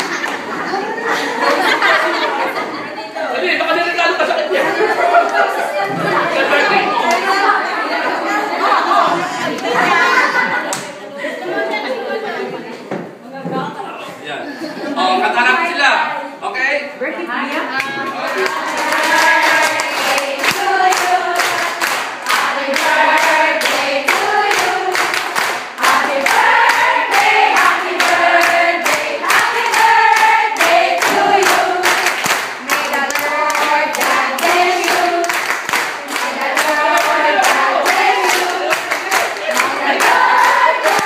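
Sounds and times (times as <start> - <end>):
group of people singing: 4.5 - 10.6, 17.8 - 41.0
hands clapping in a steady beat: 17.8 - 41.0.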